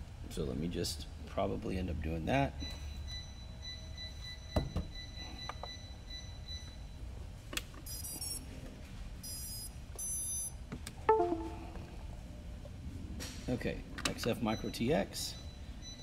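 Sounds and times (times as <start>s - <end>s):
short high electronic beeps: 11.1s - 11.8s.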